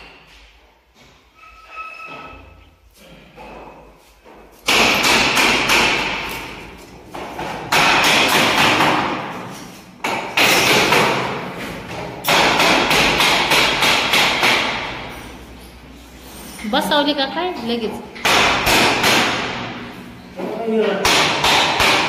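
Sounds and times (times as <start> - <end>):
loud knocking and rattling: 4.6 - 9.3, 10.0 - 15.2, 18.2 - 19.7, 21.0 - 22.0.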